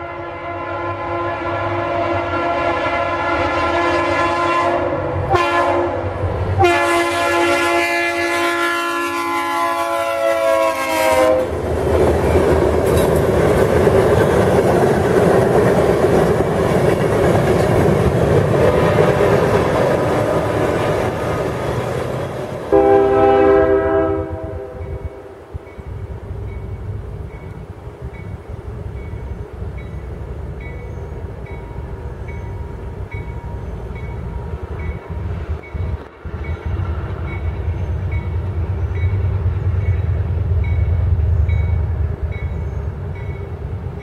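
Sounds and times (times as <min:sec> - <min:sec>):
locomotive horn chord: 0:00.0 - 0:11.5, 0:22.7 - 0:25.4
train rumbling on rails: 0:00.0 - 0:44.0.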